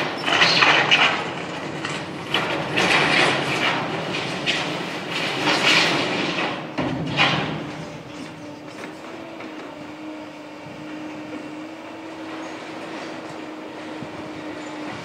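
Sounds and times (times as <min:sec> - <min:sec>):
concrete rubble crashing: 0:00.0 - 0:08.4
diesel engines droning: 0:00.0 - 0:15.0.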